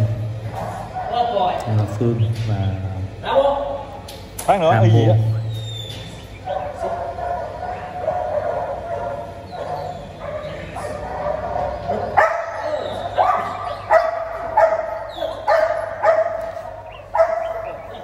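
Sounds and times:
dog barking: 0.5 - 1.6, 6.4 - 18.0
dog whining and yipping: 8.8 - 11.0, 11.7 - 15.9.

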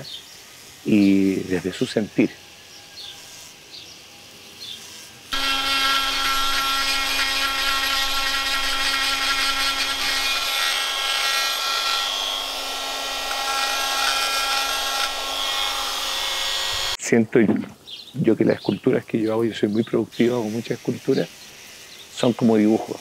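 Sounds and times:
die grinder grinding stone: 4.6 - 17.0.

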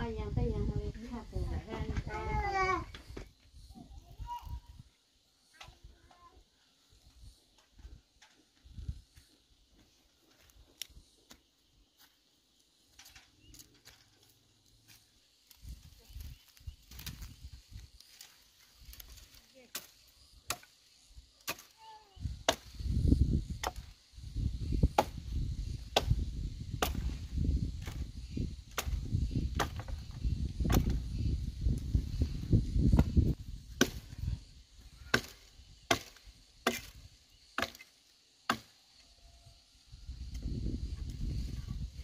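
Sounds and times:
steady chopping blows: 22.4 - 23.9, 24.7 - 31.1, 32.6 - 34.3, 35.0 - 38.7.

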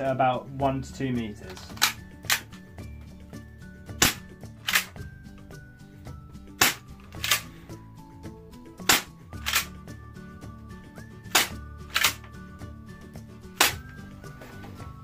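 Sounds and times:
bb pistol shots snapping: 1.5 - 2.6, 3.9 - 5.0, 6.5 - 7.5, 8.8 - 9.8, 11.2 - 12.3, 13.5 - 14.0.

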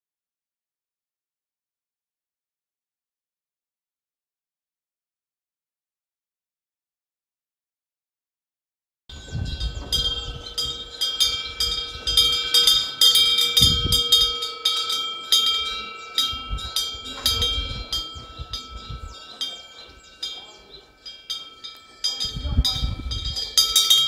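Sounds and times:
wind bell ringing: 9.1 - 24.0.

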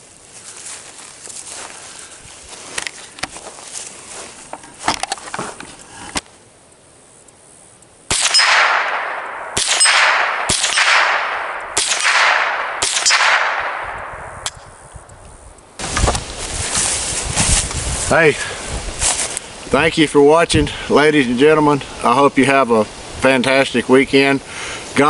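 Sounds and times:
rifle shots: 8.1 - 14.7.

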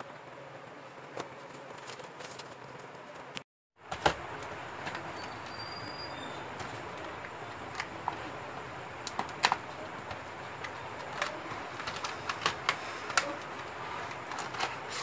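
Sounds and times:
plastic packaging clicks and taps: 9.0 - 14.8.

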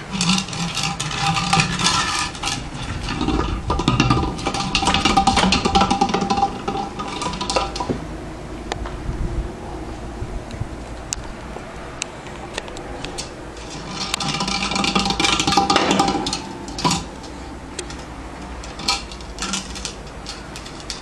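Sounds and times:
plastic toy clicking and clattering: 12.6 - 21.0.

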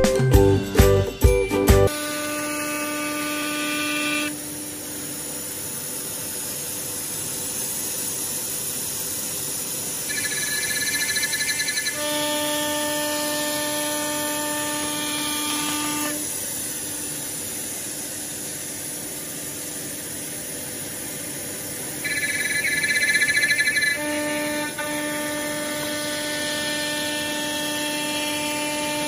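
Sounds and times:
music jingle: 0.0 - 1.9
cnc router cutting hiss: 1.9 - 29.0
whining tone with overtones: 10.0 - 16.2, 22.0 - 29.0
warbling higher tone: 22.0 - 24.0.

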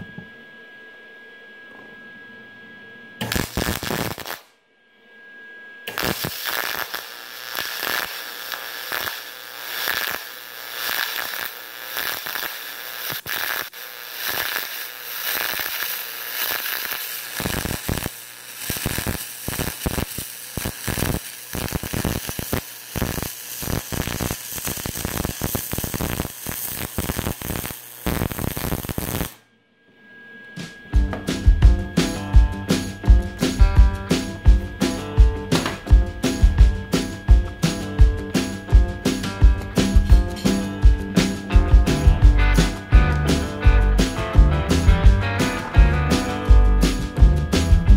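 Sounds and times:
welding arc crackling: 3.2 - 4.5, 5.9 - 29.4.

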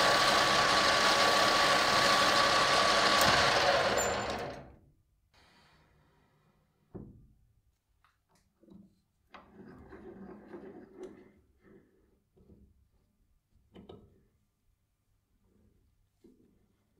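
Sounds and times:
metal lathe turning: 0.0 - 4.7
threading die scraping metal: 0.2 - 4.7.

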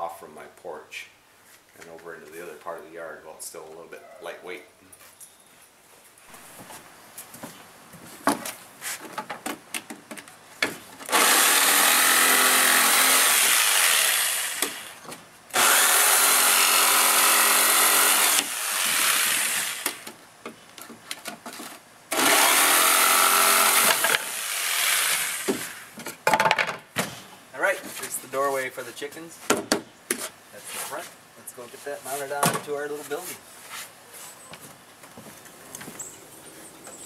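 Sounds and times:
jigsaw cutting plywood: 11.1 - 15.0, 15.6 - 20.1, 22.1 - 25.8.

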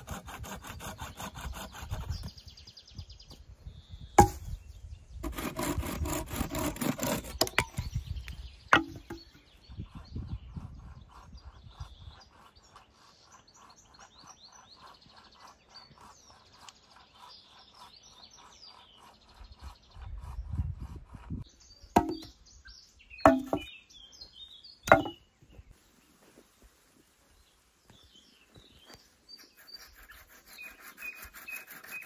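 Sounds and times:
birds chirping and singing: 0.0 - 26.3, 27.3 - 32.0
chopping blows into wood: 4.2 - 4.6, 22.0 - 22.3, 23.3 - 23.7, 24.9 - 25.2.

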